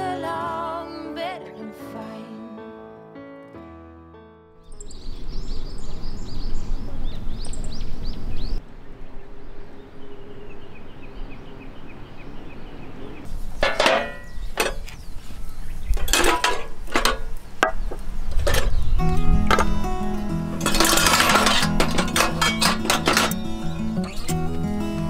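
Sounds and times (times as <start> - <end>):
birds chirping: 4.6 - 25.0
outdoor background noise: 4.6 - 25.0
metallic clinks and knocks: 13.6 - 14.9, 16.0 - 17.3, 20.6 - 23.4.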